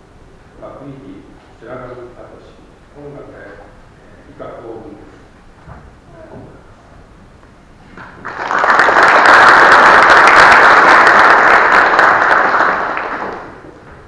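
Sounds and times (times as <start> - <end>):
audience applauding: 8.0 - 13.7.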